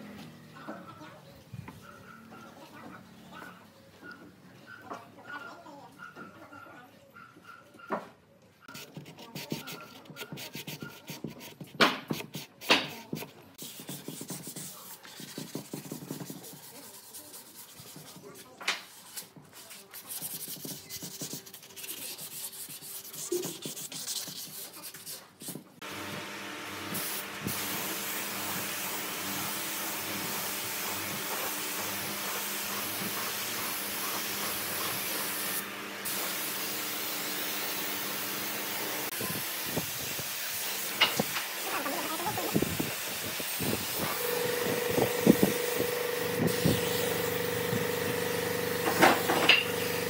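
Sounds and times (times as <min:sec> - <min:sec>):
sandpaper rubbing on wood: 0:08.7 - 0:25.7, 0:26.9 - 0:37.7, 0:38.7 - 0:47.4
paint spray gun hissing: 0:26.9 - 0:39.0.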